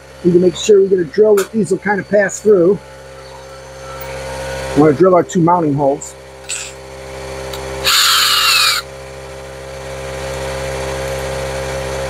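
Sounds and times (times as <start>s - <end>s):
steady low hum: 0.0s - 9.8s
cordless drill whine: 1.9s - 5.0s, 6.4s - 6.8s, 7.4s - 9.0s.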